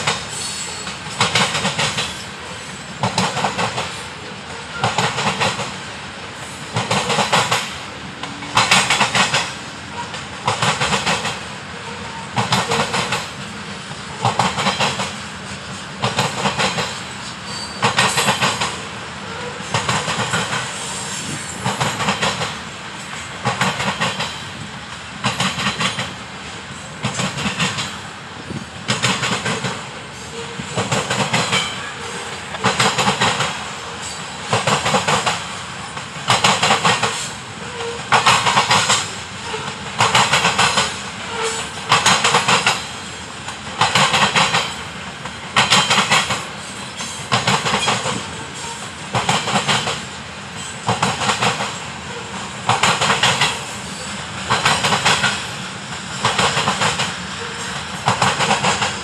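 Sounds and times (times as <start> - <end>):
train rolling rumble: 0.0 - 59.0
wheels clattering over rail crossing: 6.7 - 13.5, 27.0 - 35.5, 36.2 - 59.0.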